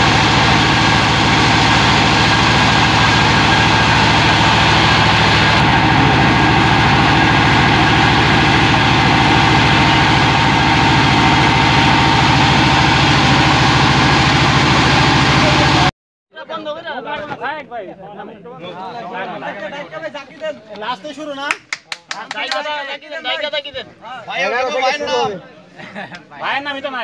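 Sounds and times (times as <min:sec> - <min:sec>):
boat engine running: 0:00.0 - 0:15.9.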